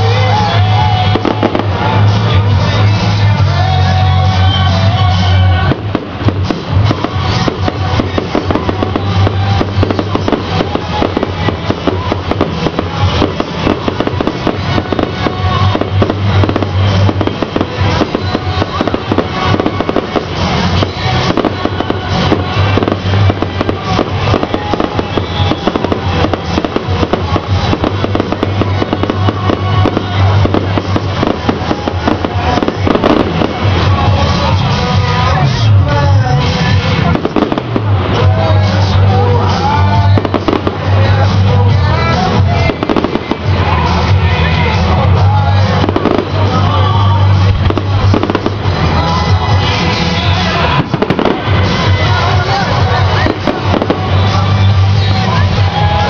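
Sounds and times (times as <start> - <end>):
fireworks bangs and crackles: 0.0 - 56.0
loud music playing: 0.0 - 56.0.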